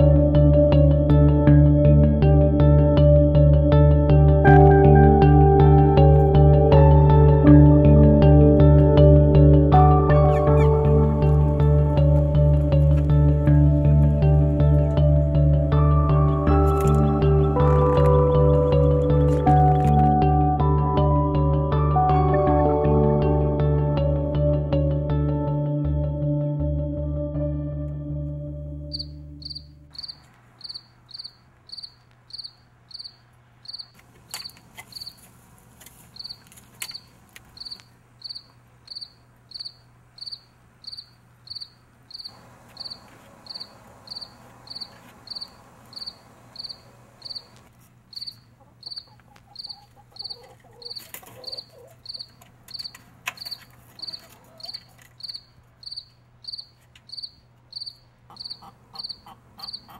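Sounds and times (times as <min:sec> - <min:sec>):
cricket chirping: 0:28.9 - 0:35.2, 0:36.2 - 0:59.9.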